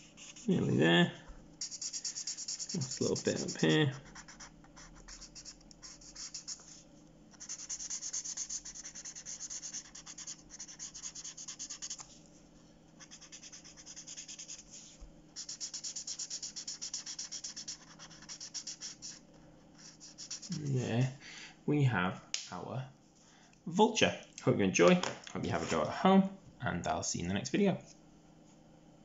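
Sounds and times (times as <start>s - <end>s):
marker pen rubbing on paper: 0.0s - 0.8s, 1.6s - 12.2s, 13.0s - 20.9s.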